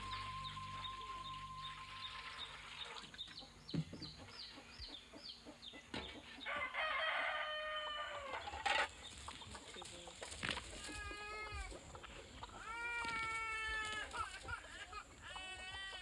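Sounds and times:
rooster crowing: 0.0 - 2.8, 6.5 - 8.5
short falling chirps: 0.0 - 3.0.

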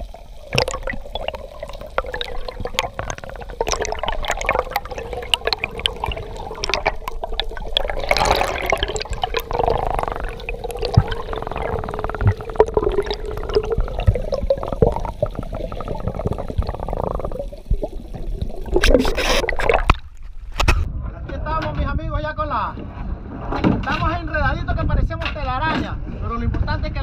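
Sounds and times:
underwater bubbling: 0.0 - 20.6
water splashing: 0.0 - 20.7.

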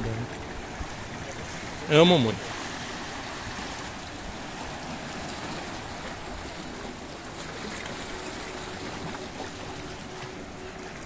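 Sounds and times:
surf washing between rocks: 0.0 - 11.0.

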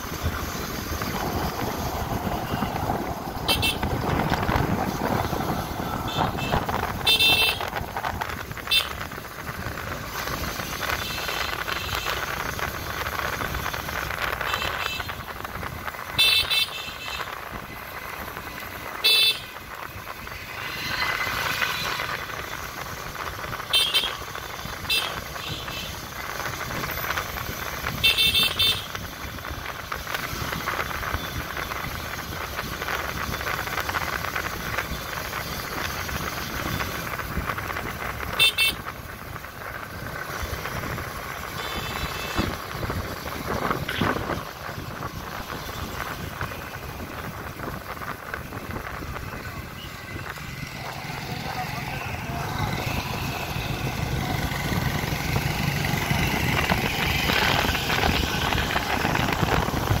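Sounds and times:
wind rushing: 0.0 - 8.6, 19.6 - 23.2, 52.2 - 60.0
traffic noise: 0.0 - 60.0
vehicle horns tooting: 3.5 - 4.0, 6.1 - 7.7, 16.2 - 17.3, 19.0 - 19.6, 23.7 - 24.2, 24.8 - 26.0, 28.0 - 28.9, 38.3 - 38.9, 41.5 - 42.6.

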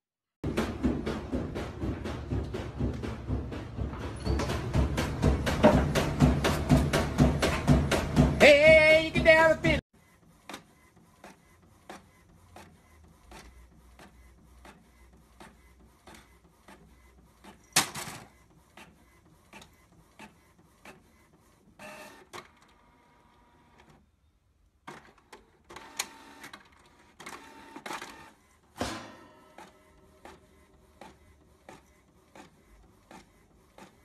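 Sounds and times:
inkjet printer clicking and ticking: 29.5 - 34.0.

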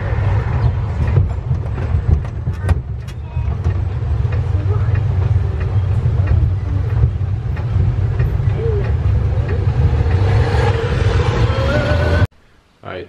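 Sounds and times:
vehicle cabin rumble: 0.0 - 12.3.

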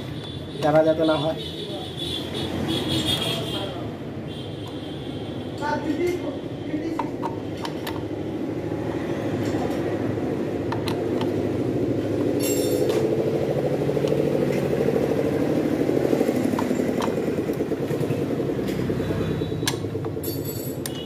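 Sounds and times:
engine running: 7.8 - 21.0
socket wrench clicking: 10.7 - 11.4, 20.7 - 21.0.

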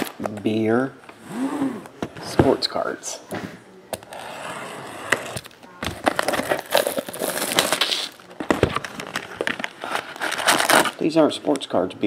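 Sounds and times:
plastic shrink-wrap crinkling: 5.4 - 11.8.

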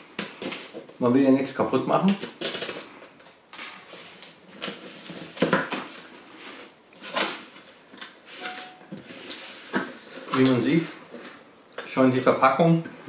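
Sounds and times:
cardboard scraping: 4.0 - 11.4.

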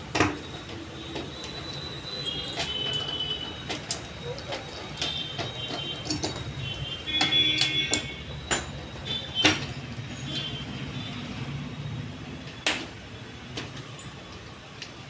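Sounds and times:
metal bolts clicking and clinking: 0.1 - 10.5
squeaky metal scrape: 0.4 - 9.4.

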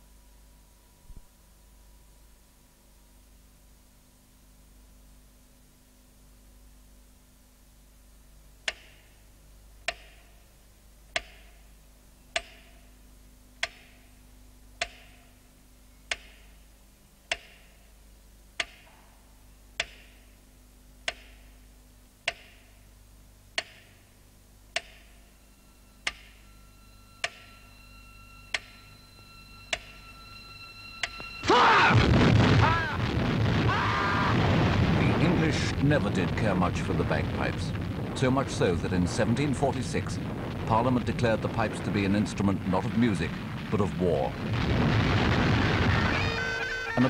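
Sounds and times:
metronome ticking: 8.6 - 9.1, 11.1 - 11.7, 12.3 - 12.9, 13.6 - 14.1, 14.8 - 15.3, 16.0 - 16.6, 17.2 - 17.8, 18.5 - 18.9, 19.7 - 20.3, 21.0 - 21.6, 22.2 - 22.8, 23.5 - 25.3, 25.9 - 26.5, 27.2 - 27.7, 28.4 - 29.0, 29.7 - 30.1.

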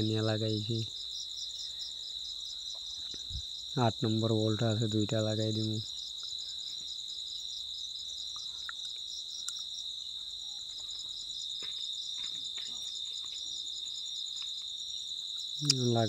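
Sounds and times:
high insect trill: 0.0 - 16.0.

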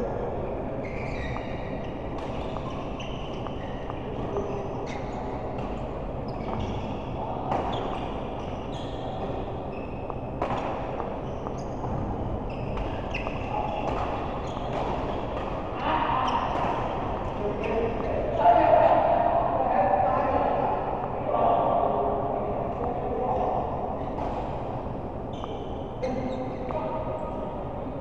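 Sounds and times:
hall background noise: 0.0 - 28.0
shoes squeaking on court floor: 0.4 - 19.1, 22.8 - 27.4
racket hitting shuttle: 1.4 - 4.3, 5.1 - 6.6, 9.1 - 12.1, 12.7 - 18.2.

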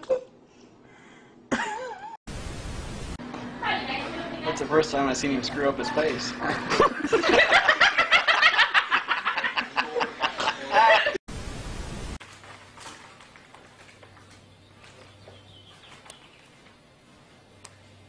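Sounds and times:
low hum: 2.3 - 4.5
people laughing: 5.9 - 11.2.

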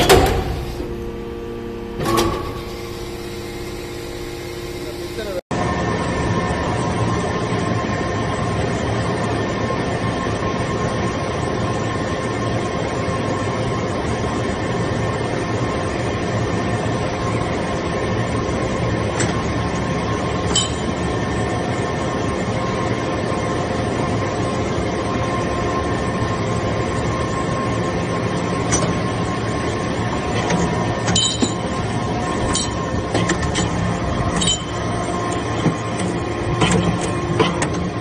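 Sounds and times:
faint whining tones: 0.0 - 5.4
hydraulic power unit droning: 0.0 - 38.0.

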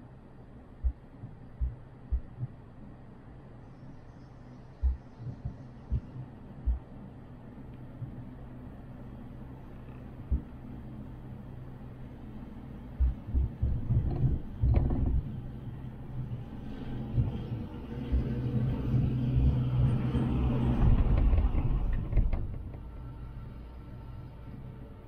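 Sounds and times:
cable car rumble with hum: 0.0 - 25.0
cable car thumps: 13.0 - 15.4, 20.6 - 22.9.

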